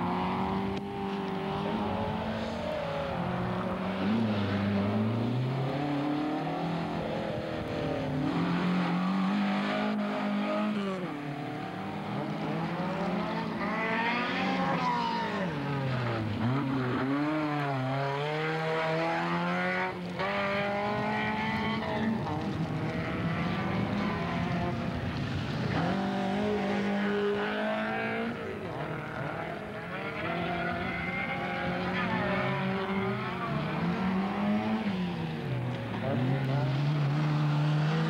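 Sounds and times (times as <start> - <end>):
rally car engines revving: 0.0 - 38.0.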